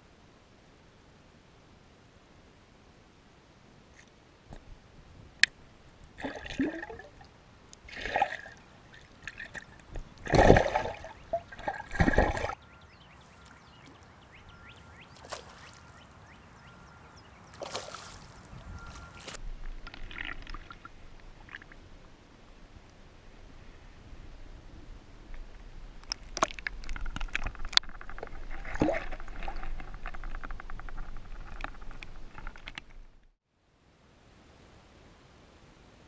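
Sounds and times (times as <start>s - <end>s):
water sloshing and splashing: 6.1s - 12.6s, 15.1s - 16.0s, 17.5s - 22.1s, 26.0s - 32.8s
fish splashing at water surface: 9.2s - 12.6s, 15.2s - 15.8s, 17.6s - 18.4s.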